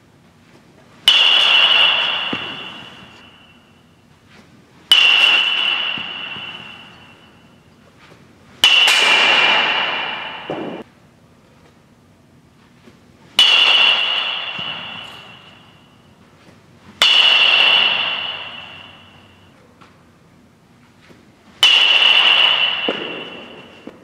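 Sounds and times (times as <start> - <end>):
metal bat pinging ball: 1.0 - 4.0, 4.8 - 7.8, 8.5 - 10.9, 13.3 - 16.3, 16.9 - 19.6, 21.5 - 24.0.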